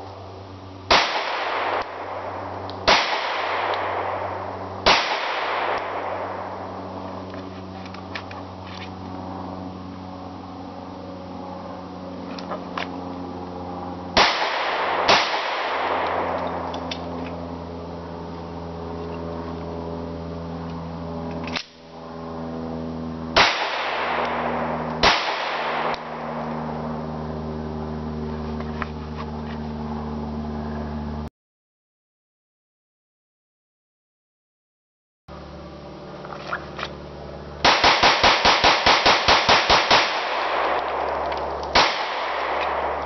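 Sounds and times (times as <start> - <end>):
steady low hum: 0.0 - 31.3, 35.3 - 43.0
handgun shots echoing: 0.9 - 6.6, 23.4 - 26.4, 37.6 - 43.0.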